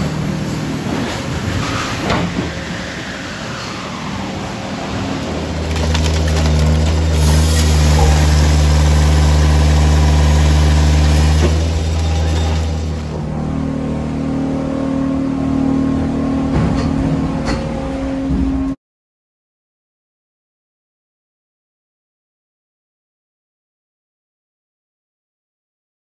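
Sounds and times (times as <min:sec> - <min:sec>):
engine droning: 0:00.0 - 0:18.8.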